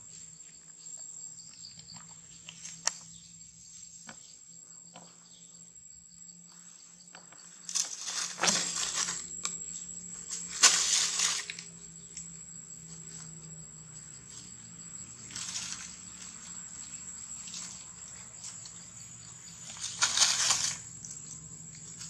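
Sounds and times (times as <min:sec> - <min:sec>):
high-pitched insect whine: 0:00.0 - 0:22.0
dry leaves crackling and rustling: 0:07.7 - 0:09.6, 0:10.3 - 0:11.7, 0:15.1 - 0:18.8, 0:19.5 - 0:22.0.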